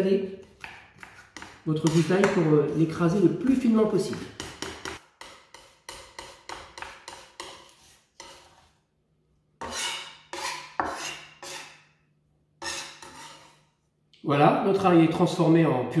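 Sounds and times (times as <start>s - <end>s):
knife scraping on cutting board: 0.4s - 2.4s, 4.1s - 8.8s, 9.6s - 11.9s, 12.6s - 13.8s.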